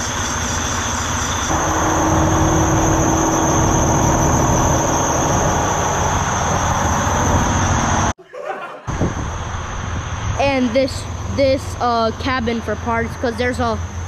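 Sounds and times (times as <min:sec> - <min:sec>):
high whine: 0:00.0 - 0:08.2
steady hum: 0:01.2 - 0:08.2
truck diesel engine idling: 0:01.5 - 0:08.1.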